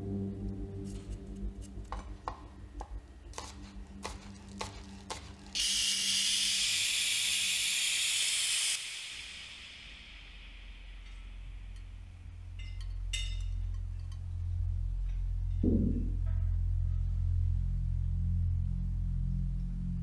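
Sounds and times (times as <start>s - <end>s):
loud steady hiss: 5.5s - 12.7s.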